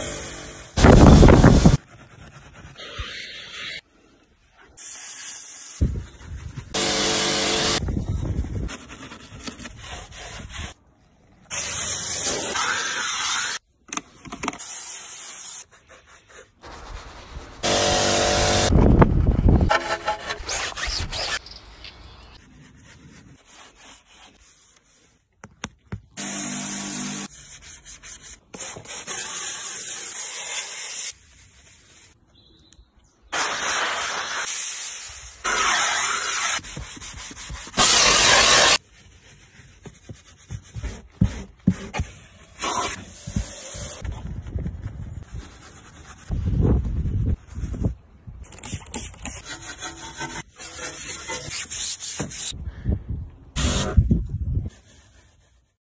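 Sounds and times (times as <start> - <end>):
brush scrubbing foamed surfaces: 0.9 - 5.3, 14.7 - 17.6, 22.4 - 25.4, 33.7 - 44.0, 54.7 - 55.8.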